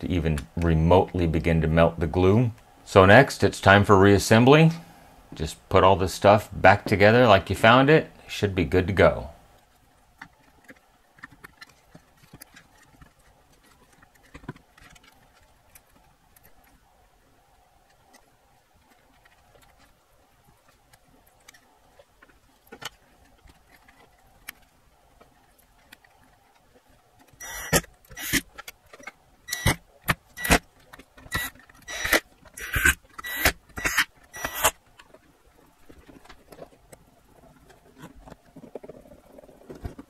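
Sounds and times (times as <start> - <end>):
plastic parts clicking: 22.3 - 35.2.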